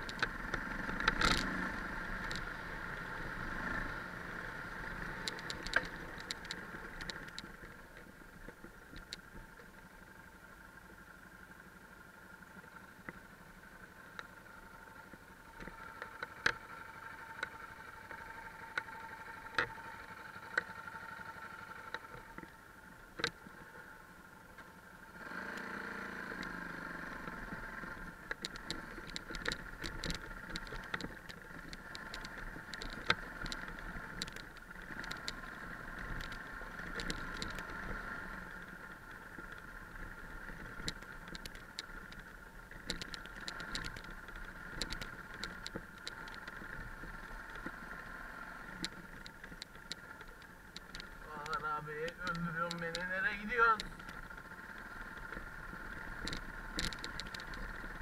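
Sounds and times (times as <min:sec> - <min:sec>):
clicks and knocks from rough ground: 0:00.0 - 0:01.5, 0:05.2 - 0:09.7, 0:27.9 - 0:58.0
motorcycle engine: 0:00.0 - 0:58.0.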